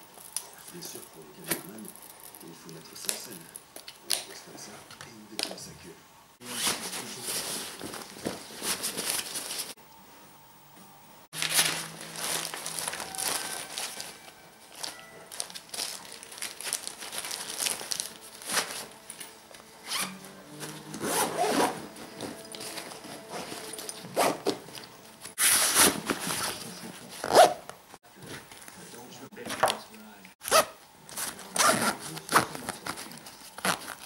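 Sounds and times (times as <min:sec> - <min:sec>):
rustling and rubbing: 0:06.4 - 0:09.8, 0:11.4 - 0:19.1, 0:19.8 - 0:27.6.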